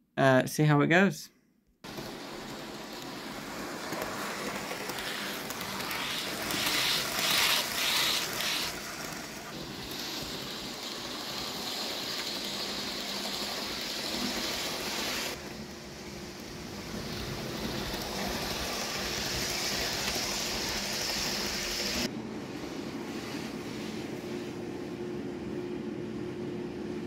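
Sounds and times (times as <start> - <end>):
model train motor whirring: 1.9 - 15.4, 17.0 - 22.1.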